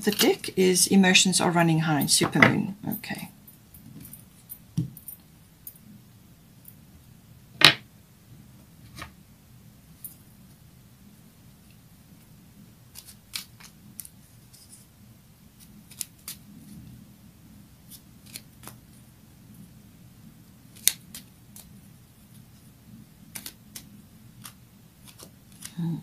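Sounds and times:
low room hum: 0:00.0 - 0:26.0
cards being shuffled: 0:12.9 - 0:14.8, 0:17.9 - 0:18.9, 0:23.3 - 0:25.9.

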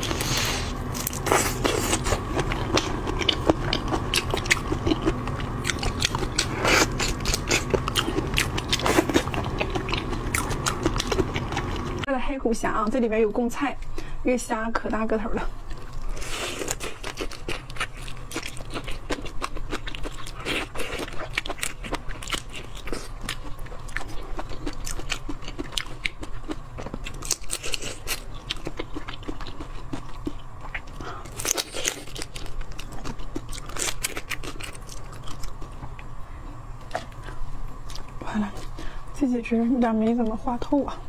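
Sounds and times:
shrimp shells crunching: 0:31.3 - 0:35.7.

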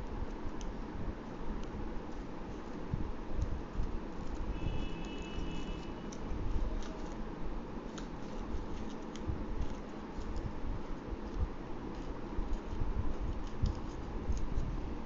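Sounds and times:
low rumble of handling noise: 0:00.0 - 0:15.0
paper crinkling and creasing: 0:03.6 - 0:14.8.

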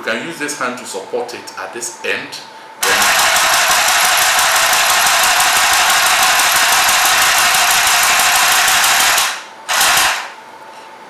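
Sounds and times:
sewing machine stitching: 0:02.8 - 0:10.3.

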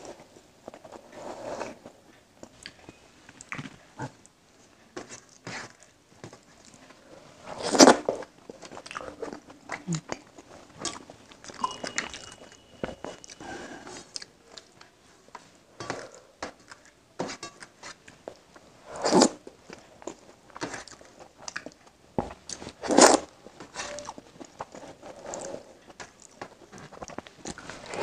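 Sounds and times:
wet chewing and mouth clicks: 0:08.5 - 0:13.4, 0:19.7 - 0:21.9.

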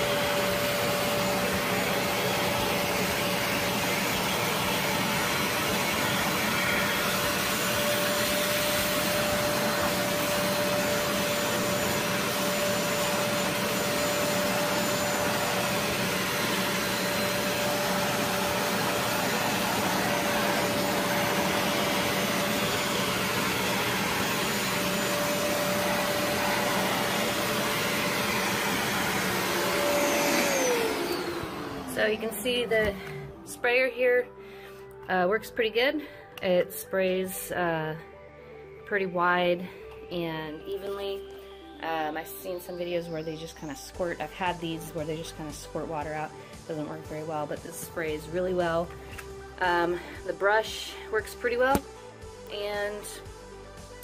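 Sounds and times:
carpet cleaner suction whine: 0:00.0 - 0:34.0.

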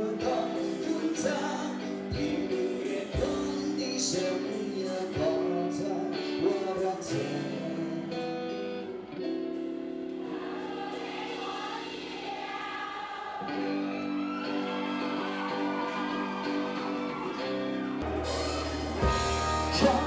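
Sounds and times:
person singing: 0:00.0 - 0:09.1, 0:10.2 - 0:20.0
guitar: 0:00.0 - 0:20.0
pop song through a pa: 0:00.0 - 0:20.0.

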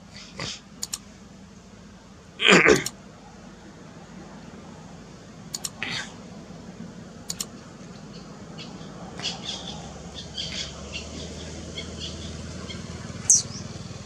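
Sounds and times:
low steady hum: 0:00.0 - 0:14.0
quick double click: 0:00.8 - 0:01.0, 0:05.5 - 0:05.8, 0:07.3 - 0:07.5
animal chirps and squawks: 0:08.6 - 0:13.7.

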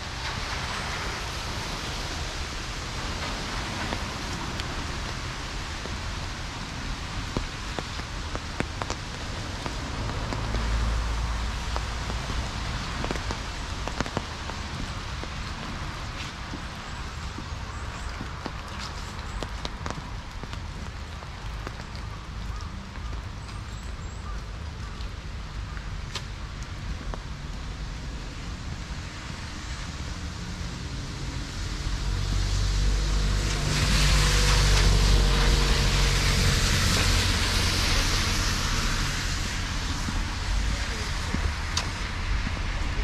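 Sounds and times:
low engine rumble: 0:00.0 - 0:43.0
tyres hissing on wet asphalt: 0:00.0 - 0:43.0.

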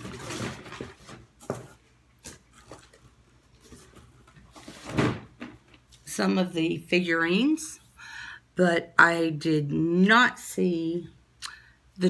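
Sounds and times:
rustling in cardboard box: 0:00.0 - 0:01.8.

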